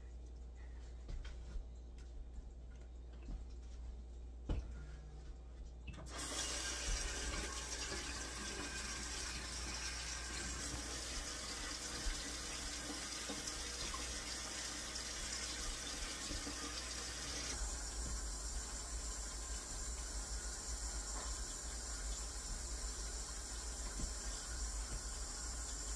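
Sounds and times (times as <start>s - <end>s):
faucet running into steel sink: 6.0s - 25.9s.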